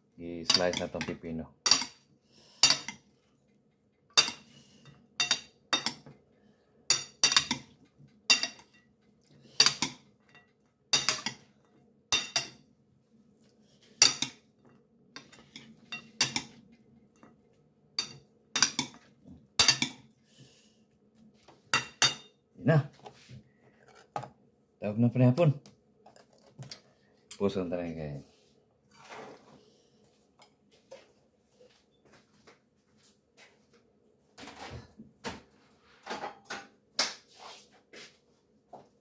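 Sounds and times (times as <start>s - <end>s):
metal spoon clinking ceramic bowl: 5.2s - 6.0s, 6.9s - 7.7s, 8.3s - 8.9s, 9.6s - 11.5s, 12.1s - 12.6s.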